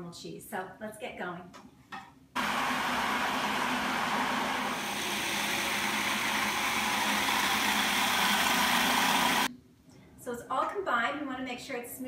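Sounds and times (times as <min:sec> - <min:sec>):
food processor motor running: 0:02.4 - 0:09.5.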